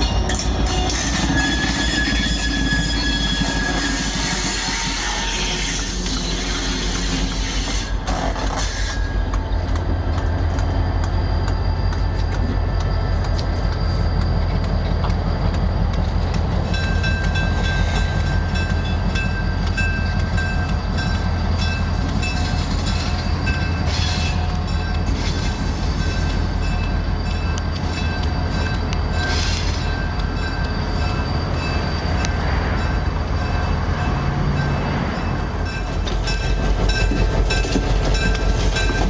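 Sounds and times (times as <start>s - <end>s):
high squealing tones: 0.0s - 9.3s
diesel locomotive rumbling: 0.0s - 39.0s.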